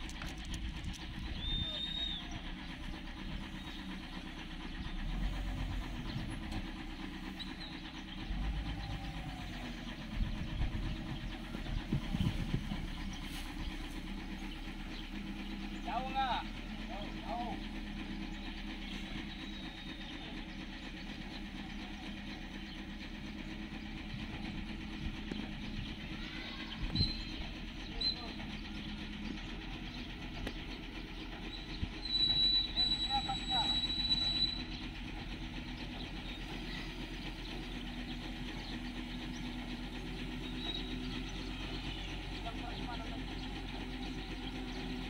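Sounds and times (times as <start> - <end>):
diesel engine running: 0.0 - 45.0.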